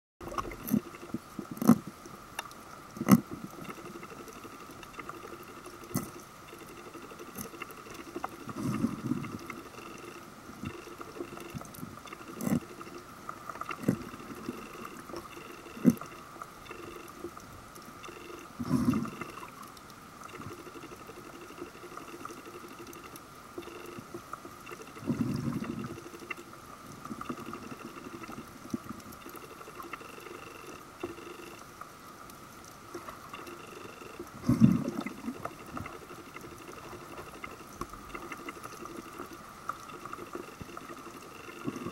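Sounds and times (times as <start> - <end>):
fish crunching sea urchins: 0.2 - 17.4
steady high hum: 0.2 - 41.9
diver's bubbles gurgling: 3.0 - 17.3, 18.0 - 19.6, 20.3 - 31.6, 33.0 - 41.9.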